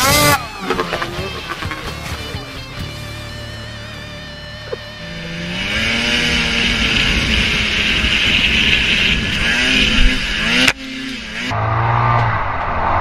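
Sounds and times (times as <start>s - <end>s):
snowmobile engine revving: 0.0s - 2.3s, 3.9s - 12.4s.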